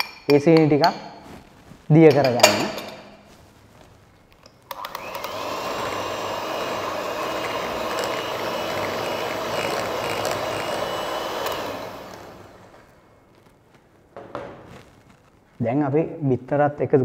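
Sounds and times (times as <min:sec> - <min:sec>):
electric hand mixer running: 0:04.7 - 0:12.8.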